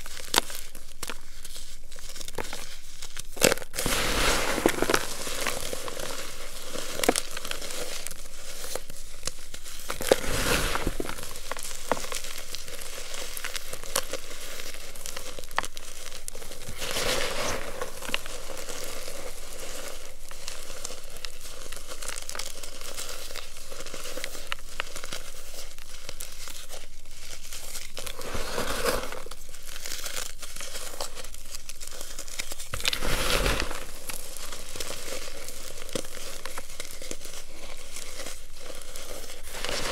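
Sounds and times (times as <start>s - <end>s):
hands crunching chalk powder: 0.0s - 39.9s.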